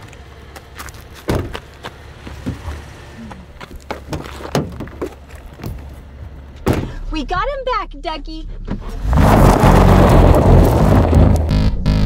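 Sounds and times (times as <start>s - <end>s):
car door thumping shut: 1.3s - 1.6s, 6.6s - 7.0s.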